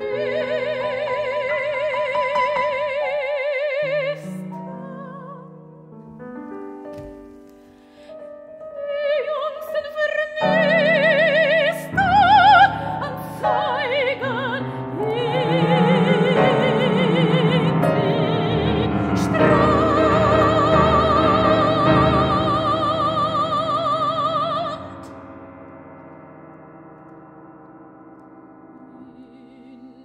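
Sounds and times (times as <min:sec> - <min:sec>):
soprano singing with vibrato: 0:00.0 - 0:05.9, 0:08.4 - 0:25.1, 0:28.8 - 0:30.0
piano: 0:00.0 - 0:30.0.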